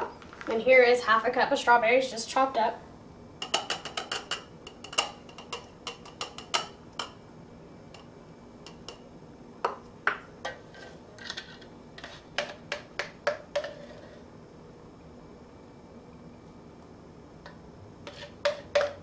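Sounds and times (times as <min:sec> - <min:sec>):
bowl knocking against glass cup: 0:18.4 - 0:19.0.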